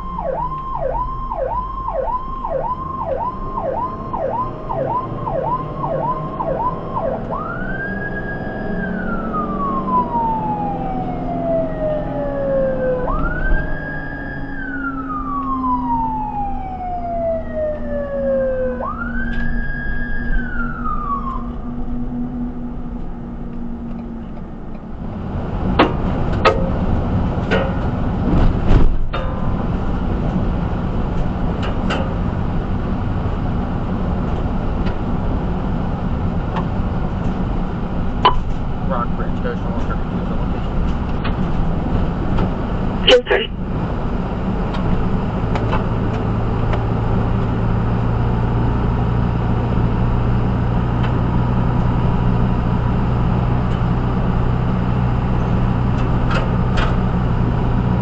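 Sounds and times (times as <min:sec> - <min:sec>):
ambulance siren: 0:00.0 - 0:25.0, 0:42.9 - 0:43.6
vehicle road rumble: 0:00.0 - 0:58.0.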